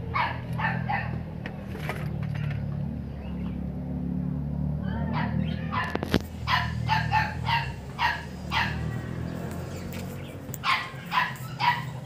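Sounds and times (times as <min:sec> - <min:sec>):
dog barking: 0:00.1 - 0:01.2, 0:05.0 - 0:09.0, 0:10.6 - 0:12.0.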